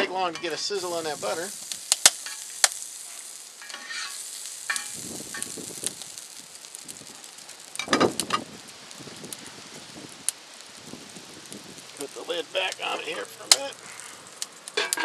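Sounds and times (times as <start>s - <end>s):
spatula scraping pan: 0.0s - 1.4s, 2.2s - 5.5s, 14.8s - 15.0s
butter sizzling in skillet: 0.0s - 15.0s.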